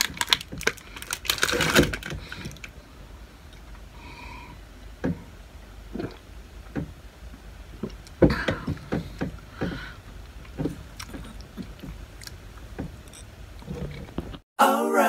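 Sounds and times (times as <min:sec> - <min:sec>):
gulping and lip smacks: 0:10.6 - 0:12.4.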